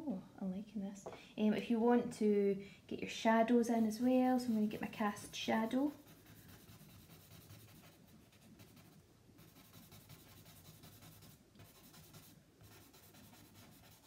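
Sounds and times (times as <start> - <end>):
charcoal scratching on paper: 5.8 - 14.0.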